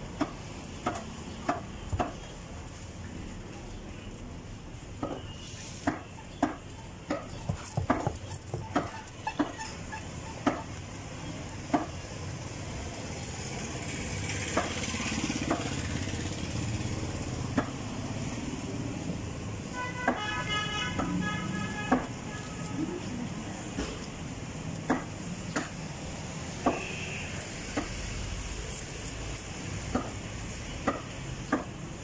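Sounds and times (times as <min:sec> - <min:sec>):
street traffic hum: 0:00.0 - 0:32.0.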